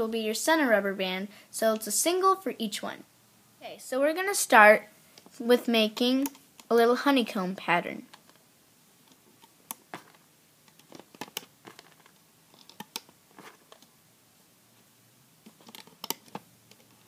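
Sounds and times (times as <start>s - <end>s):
rubber bands snapping onto pegs: 9.1s - 13.9s, 15.4s - 16.9s.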